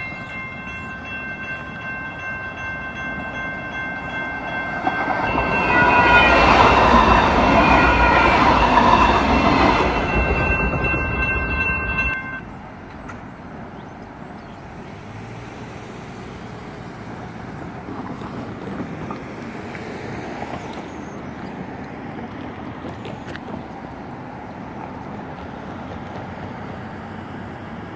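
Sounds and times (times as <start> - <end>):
crossing bells ringing: 0.0 - 14.3
light rail train rumbling: 0.0 - 27.9
outdoor background: 0.0 - 27.9.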